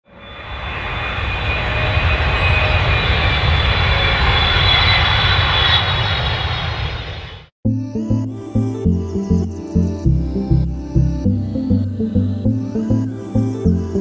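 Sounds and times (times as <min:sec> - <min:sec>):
jet engines rumbling and whining: 0:00.0 - 0:07.5.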